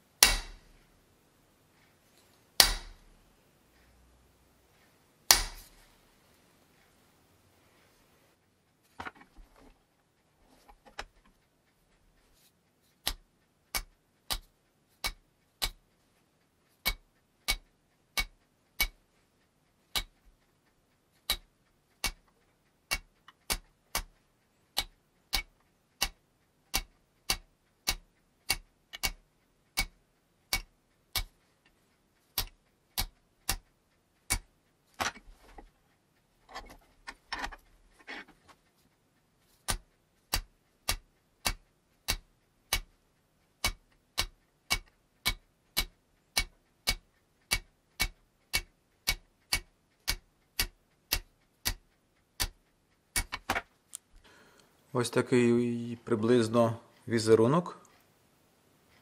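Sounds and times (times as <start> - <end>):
soft irregular noise: 0.0 - 59.0
hammer tapping chisel on steel: 0.1 - 0.8, 2.6 - 3.1, 5.3 - 5.8, 13.0 - 15.8, 16.8 - 19.0, 19.9 - 20.2, 21.2 - 31.4, 32.3 - 33.7, 34.3 - 35.6, 39.6 - 42.9, 43.6 - 51.8, 52.4 - 53.6.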